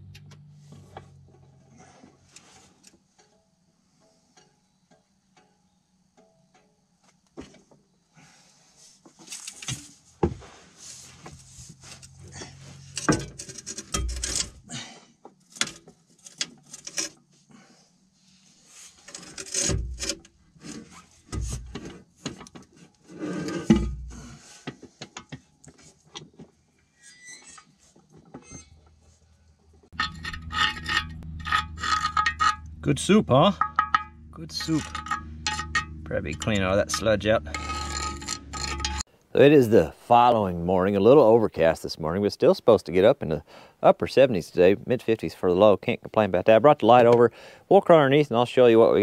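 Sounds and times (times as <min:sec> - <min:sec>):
metal clinks and scrapes: 0:09.2 - 0:10.1, 0:10.8 - 0:14.7, 0:15.4 - 0:17.3, 0:18.8 - 0:24.4, 0:29.9 - 0:39.1
tool scraping through sludge: 0:34.6 - 0:39.1.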